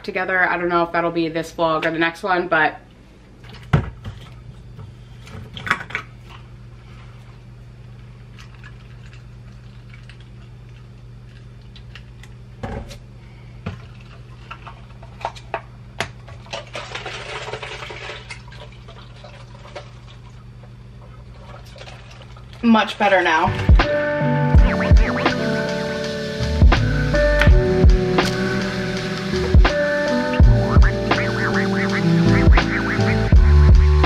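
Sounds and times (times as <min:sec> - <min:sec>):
coffee pouring into plastic cup: 0:16.4 - 0:20.4
steady low hum: 0:20.2 - 0:34.0.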